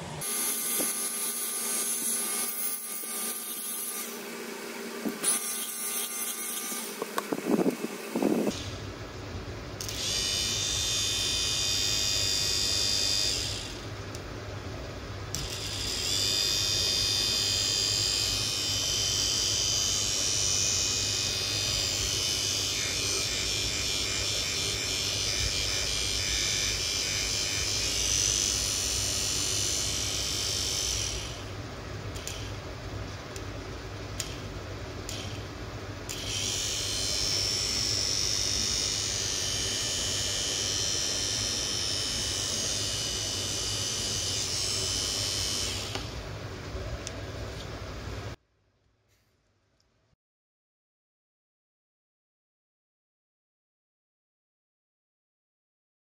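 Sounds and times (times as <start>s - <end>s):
electric motor whining: 0.0s - 8.8s, 15.3s - 31.5s, 36.1s - 46.2s.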